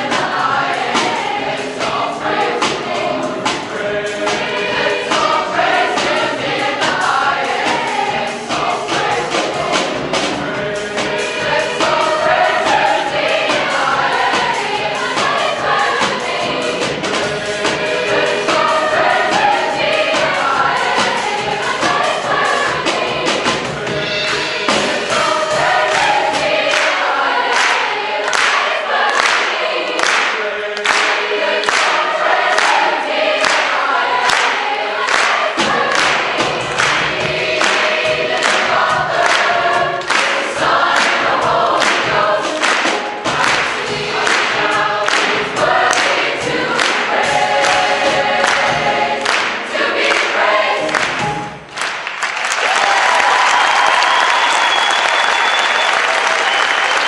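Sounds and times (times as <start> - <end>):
choir singing: 0.0 - 51.7
congas: 0.0 - 52.0
drum kit: 0.0 - 57.0
piano: 0.0 - 57.0.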